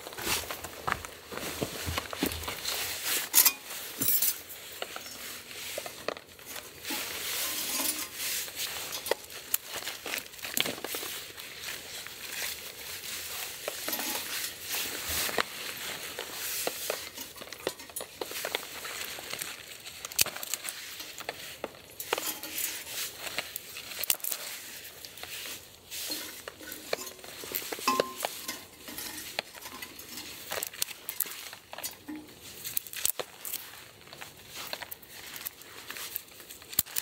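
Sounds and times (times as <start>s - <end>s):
sticks clattering against metal stove: 0.0s - 33.6s
dry twigs snapping: 7.9s - 37.0s.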